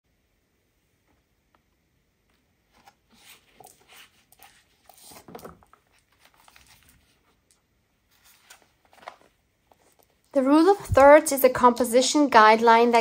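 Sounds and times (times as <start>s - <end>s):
paper journal rustling and scraping: 2.7s - 11.2s.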